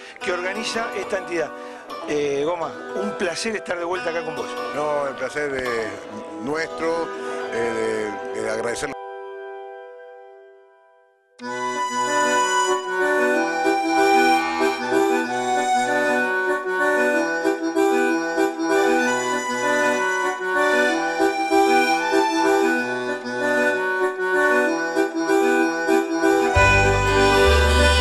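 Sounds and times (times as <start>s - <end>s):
melody notes: 0.0s - 10.8s, 11.4s - 28.0s
bass line: 17.8s - 28.0s.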